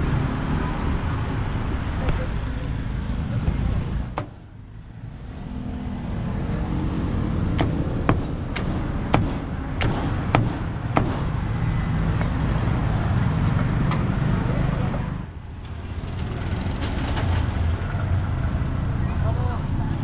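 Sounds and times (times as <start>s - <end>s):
road traffic rumble: 0.0s - 20.0s
cleaver chopping on wooden block: 7.5s - 11.3s.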